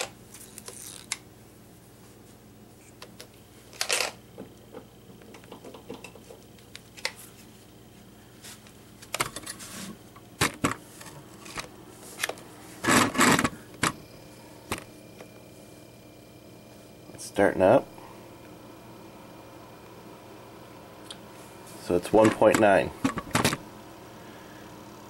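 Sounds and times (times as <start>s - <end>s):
fridge compressor hum: 0.0s - 25.0s
clamp meter clicks and knocks: 4.4s - 7.2s, 22.1s - 23.6s.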